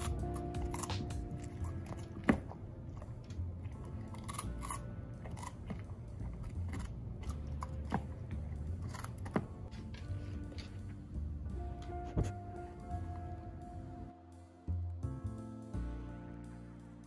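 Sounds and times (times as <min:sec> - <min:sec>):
dog crunching celery: 0:00.0 - 0:10.7.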